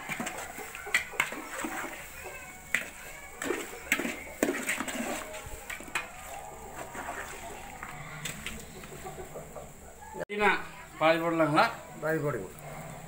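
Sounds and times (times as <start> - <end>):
ladle stirring in metal pot: 0.0 - 9.0.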